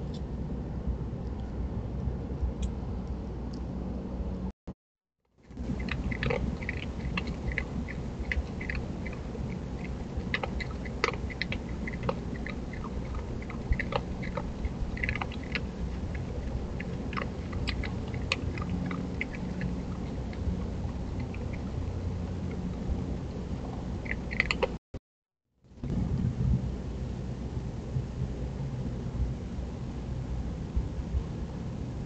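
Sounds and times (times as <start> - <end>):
steady low rumble: 0.0 - 4.5, 5.4 - 24.8, 25.7 - 32.0
animal chewing clicks and smacks: 5.6 - 24.8.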